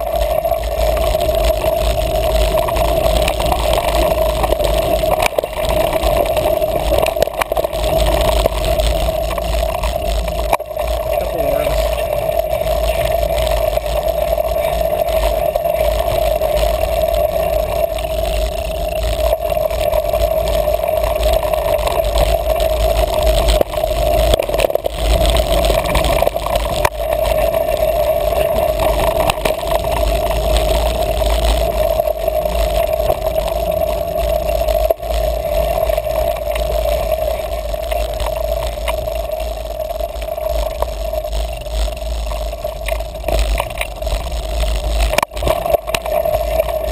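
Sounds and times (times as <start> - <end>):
bike chain and frame rattle: 0.0 - 46.9
steady drone: 0.0 - 46.9
wind rumble on microphone: 0.0 - 46.9.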